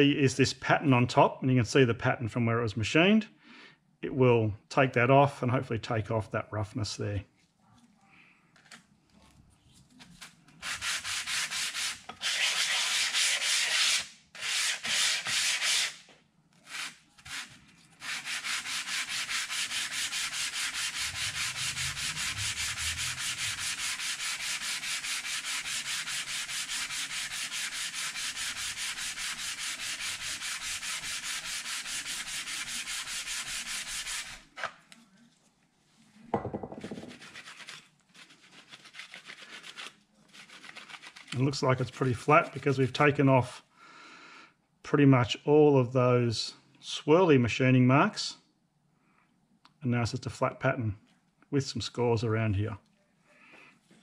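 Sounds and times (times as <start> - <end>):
metal rubbing on wet emery paper: 9.6 - 16.0, 16.6 - 34.7, 36.8 - 43.0.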